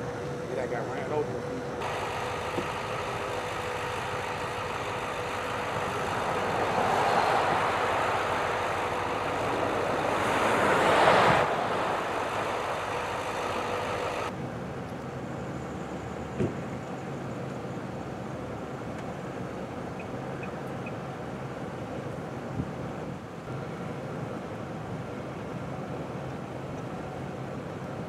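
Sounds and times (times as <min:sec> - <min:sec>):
truck engines idling: 0:00.0 - 0:28.0
vehicle noise: 0:00.0 - 0:28.0.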